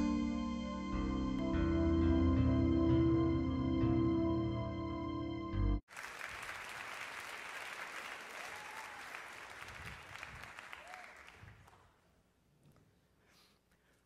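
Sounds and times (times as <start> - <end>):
intro music: 0.0 - 5.8
audience applause: 5.9 - 11.9.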